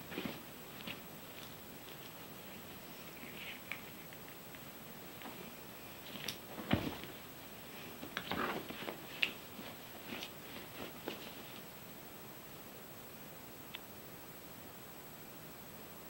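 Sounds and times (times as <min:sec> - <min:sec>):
bed sheet rustling: 0:00.0 - 0:11.8
soft thumps and scrapes: 0:06.1 - 0:11.6.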